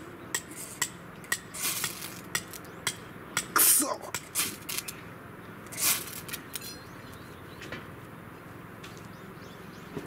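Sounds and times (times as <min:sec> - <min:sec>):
fire-starter rod scraping: 0:05.6 - 0:06.8.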